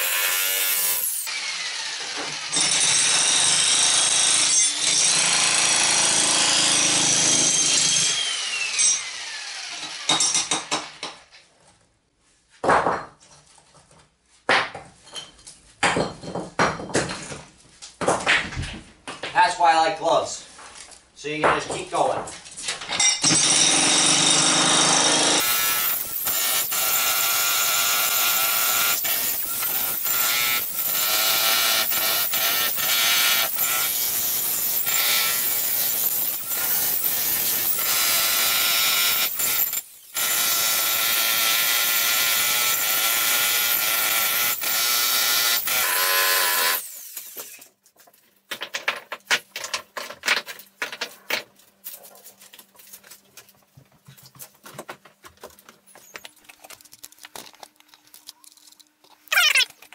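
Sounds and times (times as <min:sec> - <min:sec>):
jackhammer breaking concrete: 0:00.0 - 0:11.1, 0:23.2 - 0:47.3.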